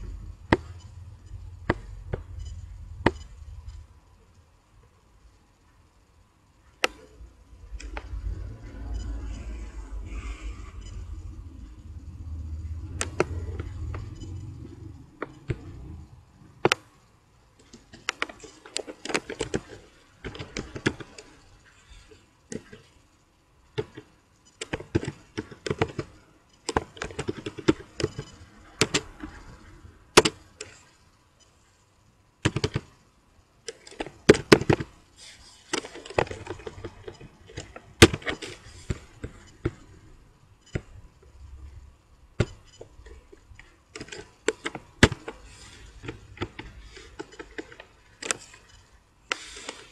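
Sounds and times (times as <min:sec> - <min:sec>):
low hum: 0:00.0 - 0:17.9
typing on computer keyboard: 0:32.4 - 0:33.0.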